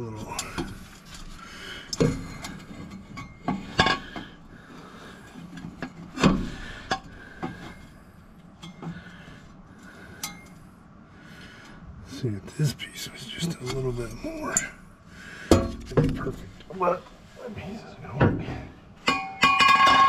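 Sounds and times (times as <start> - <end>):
metal exhaust pipes clanking: 18.2 - 20.0.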